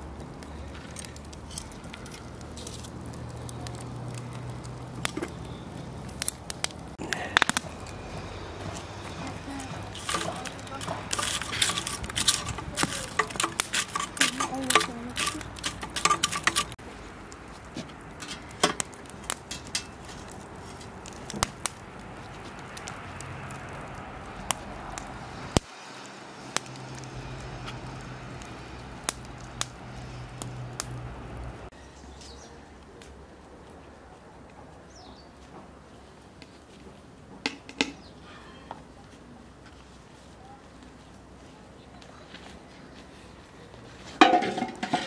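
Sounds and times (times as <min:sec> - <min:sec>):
wood fire crackling: 0:00.0 - 0:45.0
metal tongs clicking: 0:09.9 - 0:16.8.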